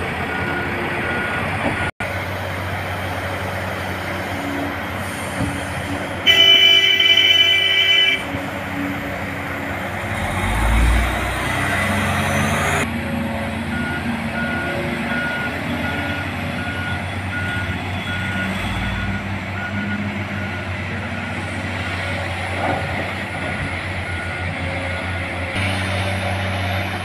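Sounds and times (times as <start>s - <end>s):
large diesel engines running: 0.0s - 27.0s
reversing alarm beeping: 13.7s - 22.1s.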